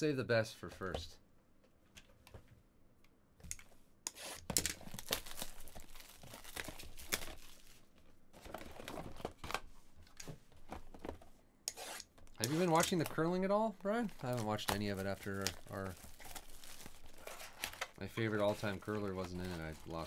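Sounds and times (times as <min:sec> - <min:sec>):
wrapper tearing and crinkling: 0:04.6 - 0:07.9, 0:14.1 - 0:20.0.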